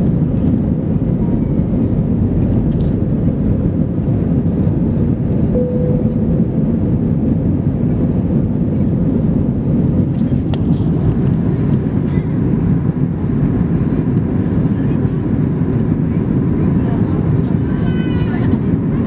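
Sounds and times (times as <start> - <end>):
airflow over fuselage: 0.0 - 19.0
jet engines rushing: 0.0 - 19.0
faint short tone: 5.6 - 6.5.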